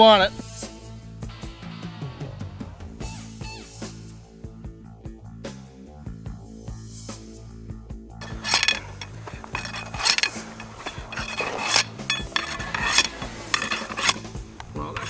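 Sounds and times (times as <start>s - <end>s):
metal bar scraping into rock: 8.2s - 15.0s.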